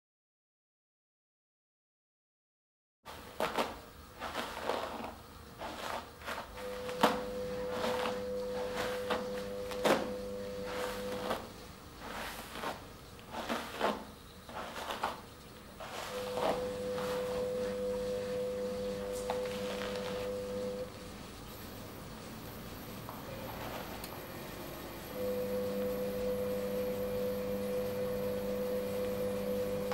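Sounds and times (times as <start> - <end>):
hairbrush strokes through wet hair: 3.1 - 20.9
low hum: 6.5 - 29.9.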